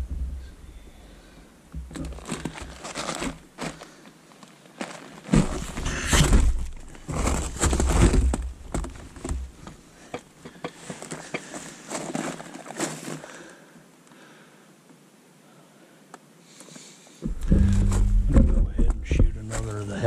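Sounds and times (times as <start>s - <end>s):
low thumping bumps: 0.0s - 0.8s, 17.2s - 19.8s
rustling handling noise: 1.8s - 13.6s, 17.2s - 20.0s.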